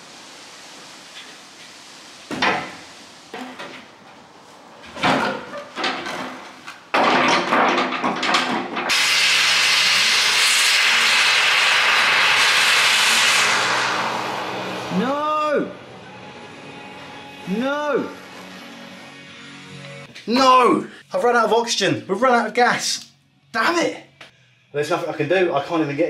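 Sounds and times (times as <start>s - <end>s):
blowtorch flame hissing: 0.0s - 3.3s, 8.9s - 19.1s
metal parts clattering: 5.1s - 8.9s.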